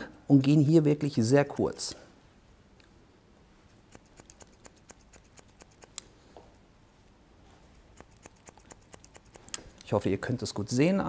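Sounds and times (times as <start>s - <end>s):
scissors snipping hair: 1.3s - 2.0s, 3.7s - 6.1s, 7.6s - 9.9s.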